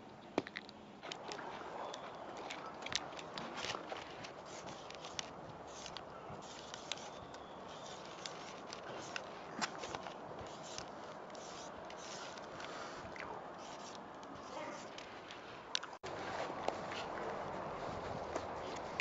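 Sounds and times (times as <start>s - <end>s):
paint marker scratching on granite: 4.5s - 9.2s, 10.5s - 12.4s, 13.6s - 14.9s.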